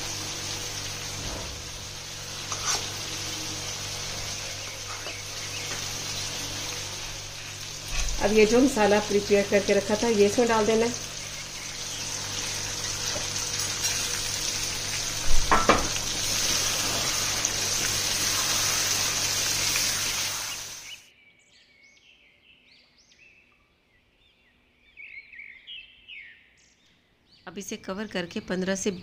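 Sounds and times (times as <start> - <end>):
paste sizzling in hot oil: 0.0 - 21.0
spatula scraping pan: 2.4 - 3.1.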